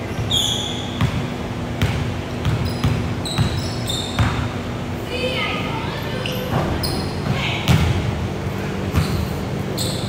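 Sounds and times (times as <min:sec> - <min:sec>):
sneakers squeaking on court: 0:00.0 - 0:04.7, 0:06.0 - 0:08.1, 0:08.8 - 0:10.0
basketball bouncing on wooden floor: 0:00.2 - 0:04.5, 0:06.6 - 0:08.0.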